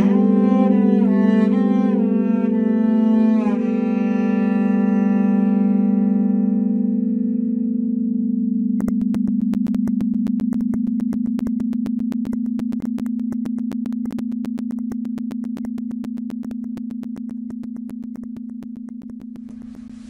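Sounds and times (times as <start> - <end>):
low electronic hum: 7.2 - 20.0.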